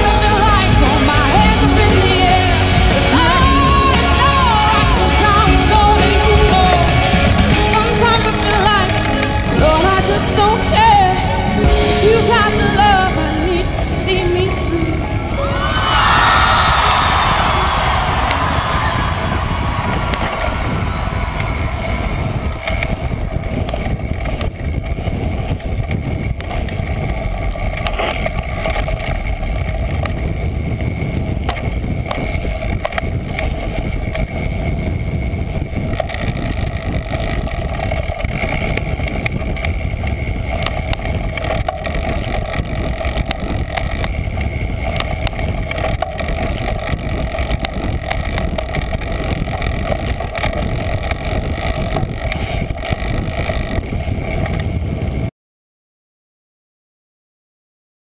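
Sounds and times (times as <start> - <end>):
road noise: 0.0 - 55.3
wind rumble: 0.0 - 55.3
bike knocks and rattles: 14.8 - 55.3.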